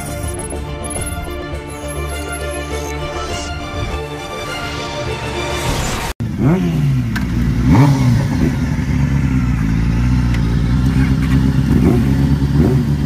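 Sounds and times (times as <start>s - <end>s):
motorcycle engines revving: 6.2s - 13.0s.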